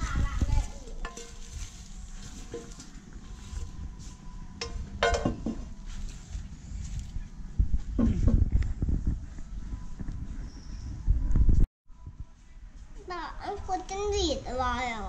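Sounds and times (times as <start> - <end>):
metal ladle scraping in a wok: 1.0 - 3.7
ladle clinking on glass bowl: 4.6 - 5.6.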